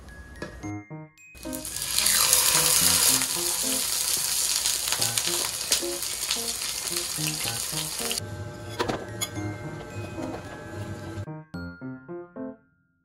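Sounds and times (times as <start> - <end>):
fish frying in hot oil: 1.4 - 8.2.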